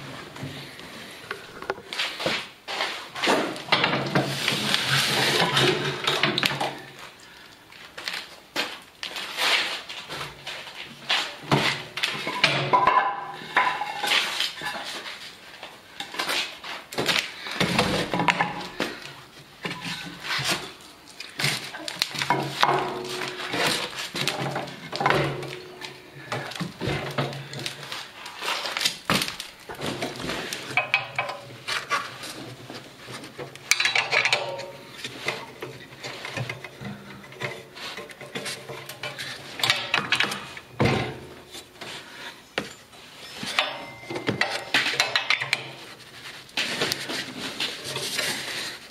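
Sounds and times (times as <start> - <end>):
wrench clinking on metal frame: 43.2 - 45.7.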